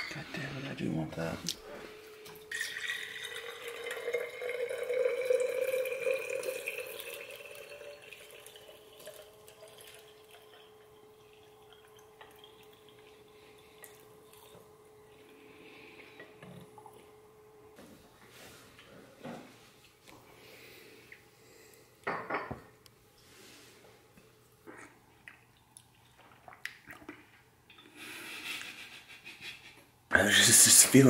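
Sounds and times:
liquid trickling and dripping: 2.2 - 14.6, 25.1 - 27.9
liquid pouring into glass jar: 2.4 - 14.5.

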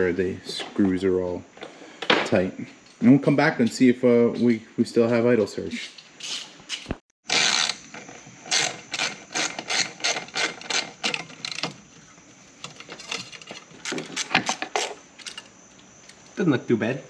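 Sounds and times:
ratchet wrench clicking: 7.3 - 7.9, 8.5 - 11.7.

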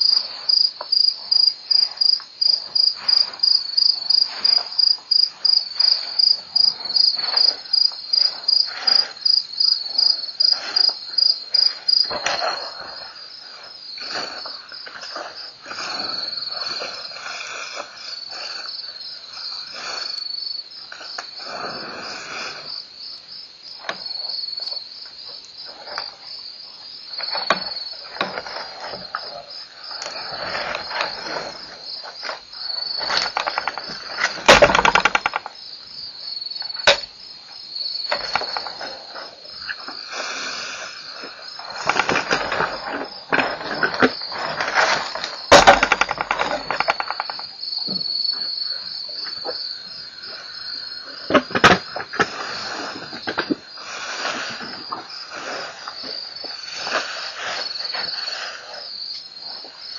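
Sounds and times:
crickets chirping: 0.0 - 59.9
rustling and crunching: 27.2 - 35.6, 38.0 - 49.6.

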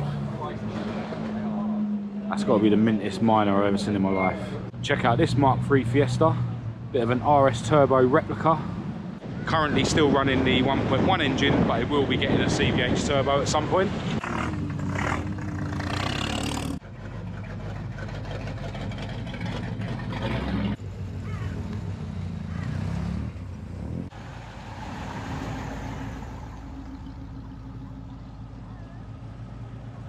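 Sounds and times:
car engines driving slowly past: 0.0 - 30.0.

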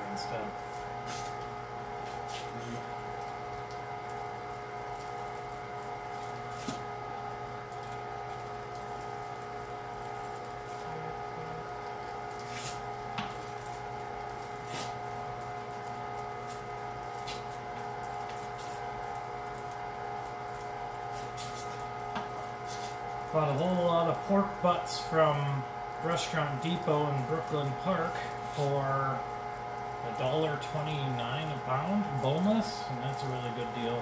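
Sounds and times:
electric meat grinder humming: 0.0 - 34.0.

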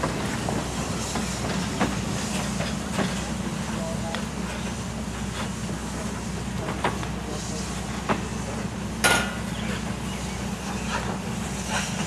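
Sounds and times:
train cars rolling rumble: 0.0 - 12.0.

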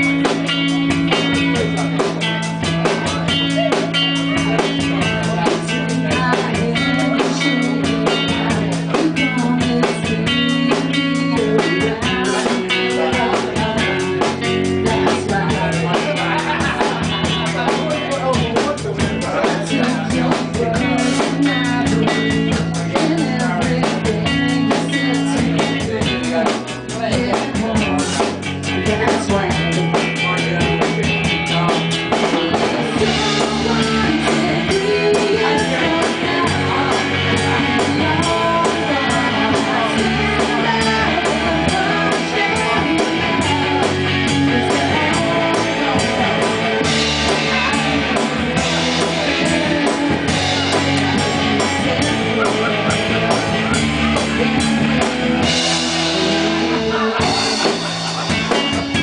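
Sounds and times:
bass guitar: 0.0 - 59.0
drum kit beat: 0.0 - 59.0
electric guitar: 0.0 - 59.0
woman singing: 4.5 - 17.4, 19.4 - 30.1, 31.7 - 54.4.

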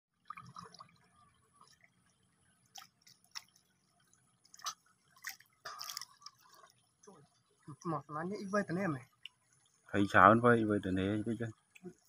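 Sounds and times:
water dripping and splashing: 0.2 - 12.0.

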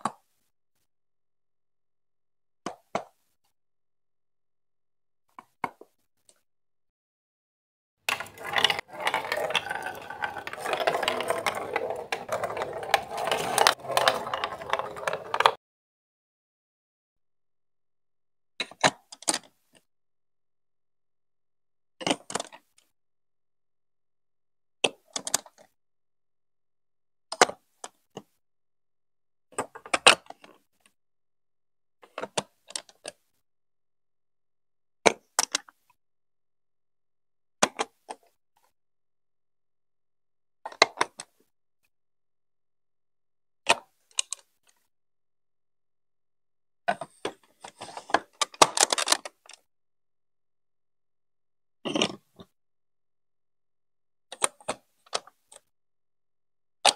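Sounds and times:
clatter of handling plastic blocks: 8.1 - 15.6, 46.9 - 49.7, 51.9 - 52.5
plastic blocks clicking together: 8.1 - 15.6.

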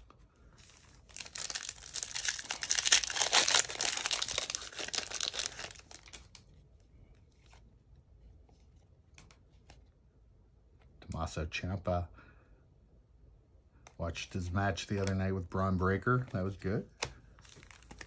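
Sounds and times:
foil wrapper tearing and crinkling: 1.0 - 6.4.

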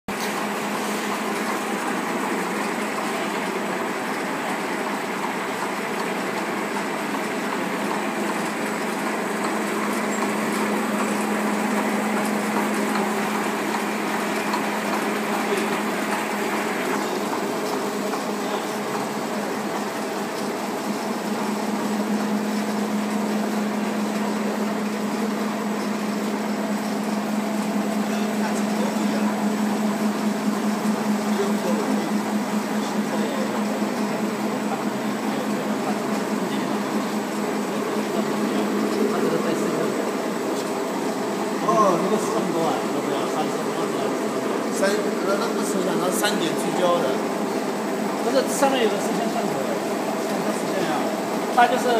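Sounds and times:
bag making machine running: 0.1 - 51.9.

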